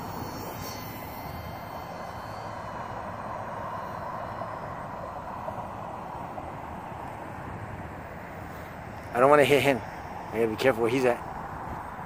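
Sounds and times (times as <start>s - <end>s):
model airplane motor buzzing: 0.0s - 5.8s.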